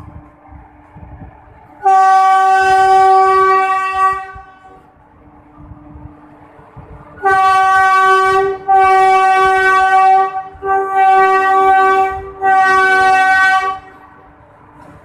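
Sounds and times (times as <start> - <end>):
train coaches rumbling past: 0.0 - 15.0
locomotive horn blasts: 1.8 - 4.9, 7.2 - 14.1.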